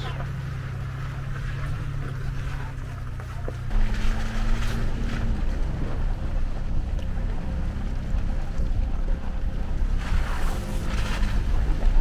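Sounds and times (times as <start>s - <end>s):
vehicle engine droning: 0.0s - 12.0s.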